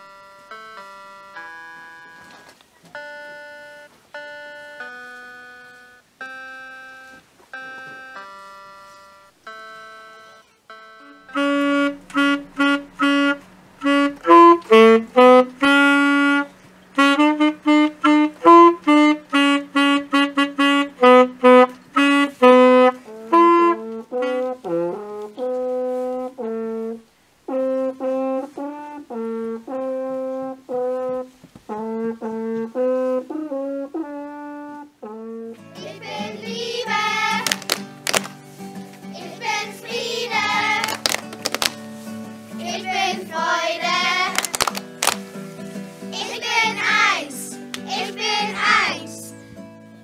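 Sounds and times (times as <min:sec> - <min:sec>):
saxophone: 0:00.0 - 0:38.2
electronic keyboard notes: 0:00.0 - 0:38.3
french horn: 0:10.8 - 0:35.8.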